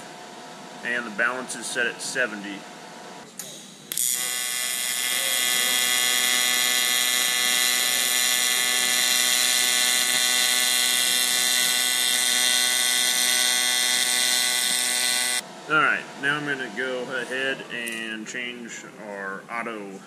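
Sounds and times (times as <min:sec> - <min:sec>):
arc welding buzz with hiss: 0:03.5 - 0:15.4.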